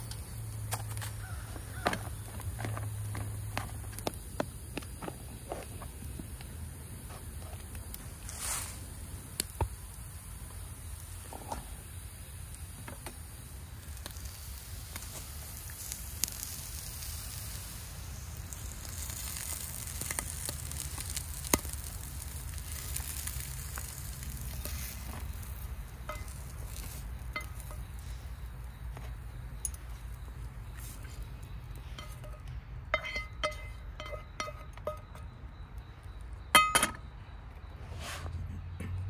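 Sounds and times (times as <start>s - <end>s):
food sizzling in a pot: 8.1s - 28.8s.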